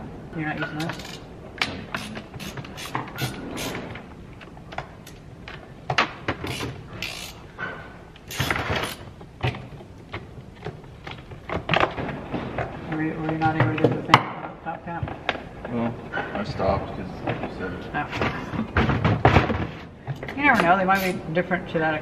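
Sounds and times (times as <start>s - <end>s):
chainsaw parts clicking and scraping: 0.9s - 1.3s, 1.9s - 3.9s, 6.4s - 7.5s, 8.2s - 9.1s.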